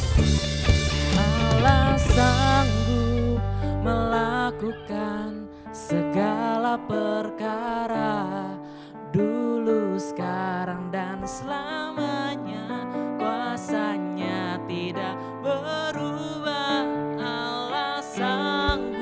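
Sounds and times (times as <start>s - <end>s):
worship band playing: 0.0s - 5.3s, 16.0s - 19.0s
man singing: 1.1s - 19.0s.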